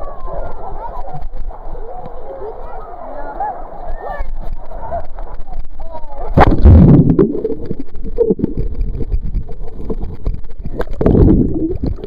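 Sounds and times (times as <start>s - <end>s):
muffled underwater rumble: 4.2s - 12.0s.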